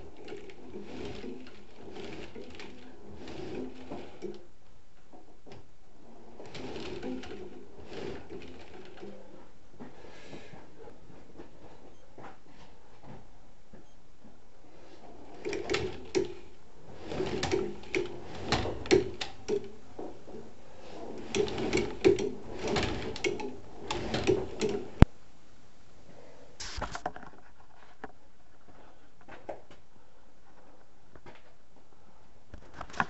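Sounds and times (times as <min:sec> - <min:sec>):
wire spools rustling and scraping: 0:00.0 - 0:13.8, 0:14.6 - 0:25.1.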